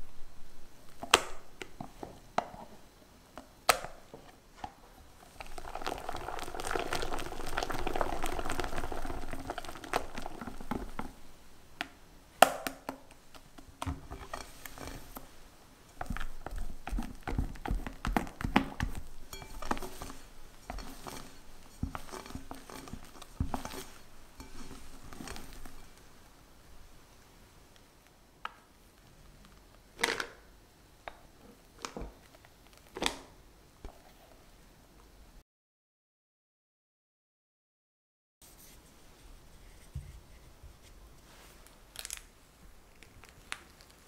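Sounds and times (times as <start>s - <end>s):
spatula folding cream squelching: 3.9s - 12.0s, 12.7s - 27.8s, 40.8s - 44.0s
wire whisk beating cream: 5.3s - 11.2s, 13.9s - 26.0s.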